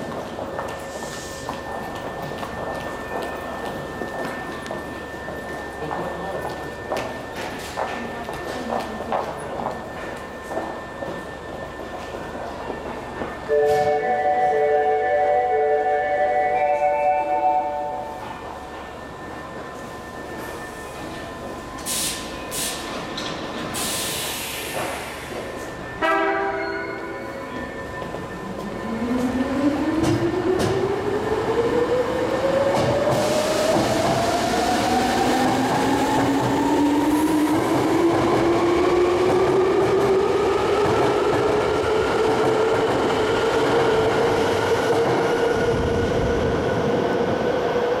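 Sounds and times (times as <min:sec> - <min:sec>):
train horn blast: 0:13.5 - 0:14.6, 0:26.0 - 0:26.9.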